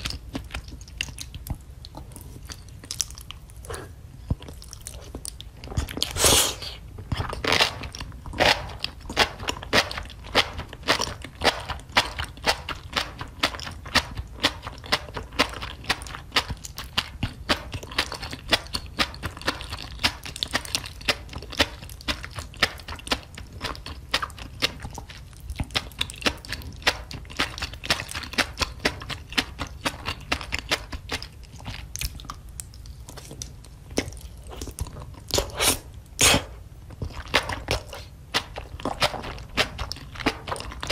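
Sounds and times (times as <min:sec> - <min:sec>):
person chewing food: 0:00.0 - 0:40.9
wet mouth clicks and smacks: 0:30.4 - 0:36.4.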